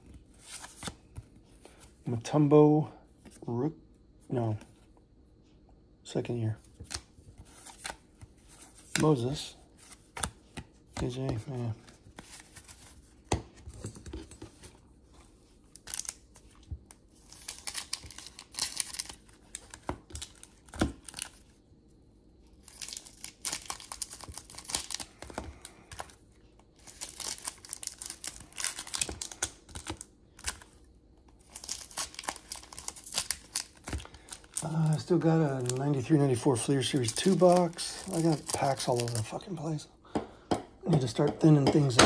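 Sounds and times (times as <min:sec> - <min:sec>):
card pack wrappers tearing: 0:15.8 - 0:16.4, 0:17.1 - 0:21.4, 0:22.6 - 0:26.2, 0:26.8 - 0:30.8, 0:31.4 - 0:39.7.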